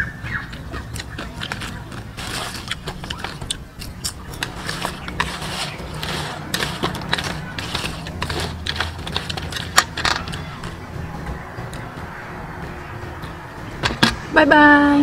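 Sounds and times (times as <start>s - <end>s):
crab shells crunching: 0.0s - 10.8s.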